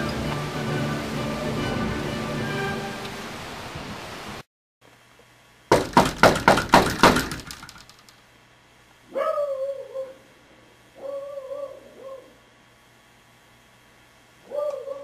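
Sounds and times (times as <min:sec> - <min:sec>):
loud knocks on a door: 0:05.7 - 0:07.8.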